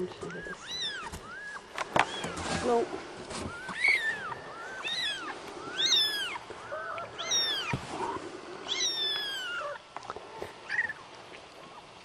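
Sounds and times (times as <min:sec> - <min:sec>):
kitten mewing: 0:03.5 - 0:09.8.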